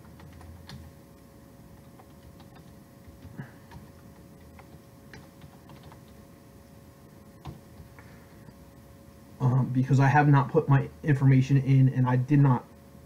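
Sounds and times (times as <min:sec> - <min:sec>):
keyboard typing clicks: 0:00.0 - 0:00.9, 0:01.8 - 0:06.2
faint steady hum: 0:00.0 - 0:13.0.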